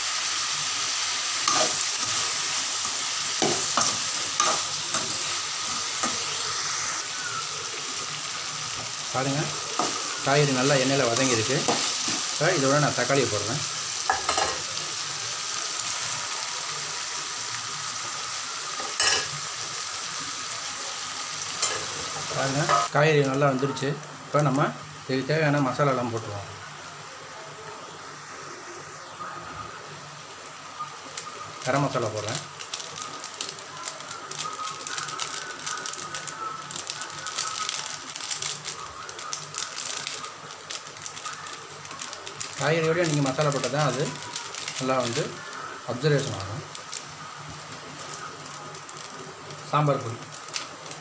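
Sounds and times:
vegetables sizzling in oil: 0.0 - 51.0
spoon scraping a pan: 1.4 - 2.3, 3.3 - 6.4.

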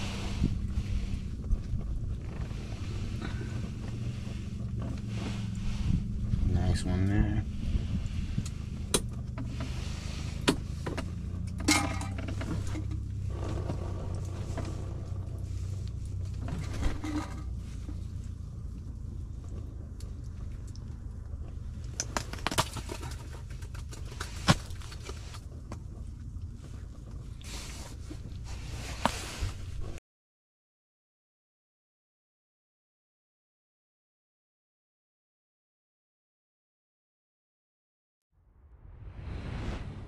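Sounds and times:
low hum: 0.0 - 30.0.

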